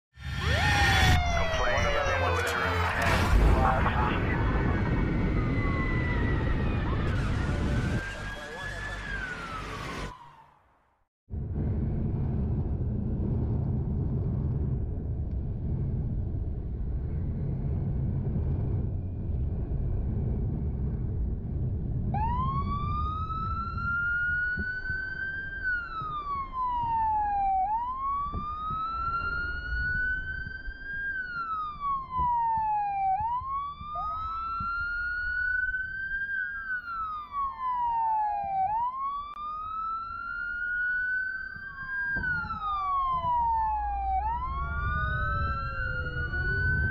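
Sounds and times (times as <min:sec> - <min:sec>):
wailing siren: 0:00.2 - 0:10.8, 0:22.1 - 0:46.9
second wailing siren: 0:00.3 - 0:03.1, 0:04.1 - 0:10.7, 0:22.1 - 0:46.9
motorcycle engine and wind rumble: 0:11.3 - 0:27.0, 0:44.2 - 0:46.9.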